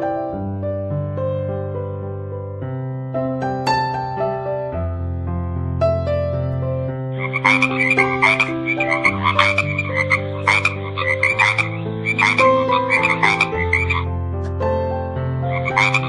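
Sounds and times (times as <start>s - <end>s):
keyboard music sustained chords: 4.8s - 16.0s
frog croaking: 7.0s - 14.2s, 15.4s - 16.0s.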